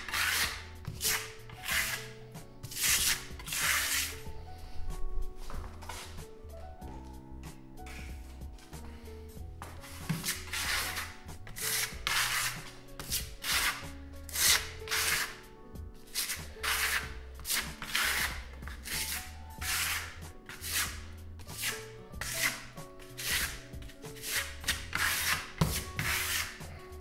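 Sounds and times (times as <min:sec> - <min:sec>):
trowel scraping a wall: 0:00.0 - 0:04.3, 0:09.7 - 0:15.4, 0:16.1 - 0:27.0.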